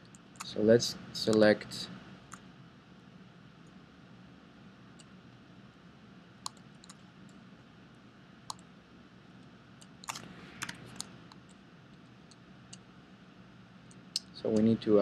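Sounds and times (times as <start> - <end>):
low steady hum: 0.0 - 15.0
mouse and keyboard clicks: 9.8 - 11.5.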